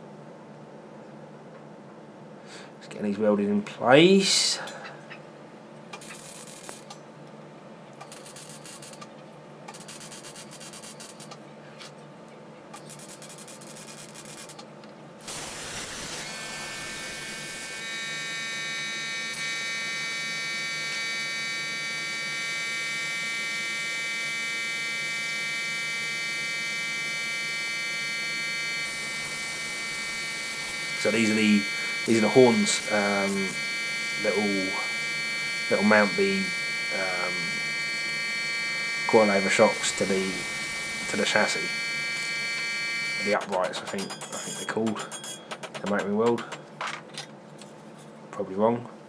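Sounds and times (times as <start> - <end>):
welding arc crackle: 5.9 - 7.0, 8.0 - 9.1, 9.7 - 11.4, 12.7 - 46.5
plasma cutter hissing whine: 6.0 - 7.0, 8.0 - 9.1, 9.7 - 11.3, 12.8 - 14.6, 15.2 - 45.1.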